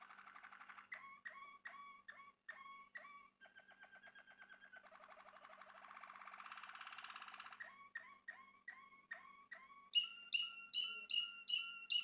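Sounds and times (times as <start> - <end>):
canary singing whistled notes: 7.6 - 12.0.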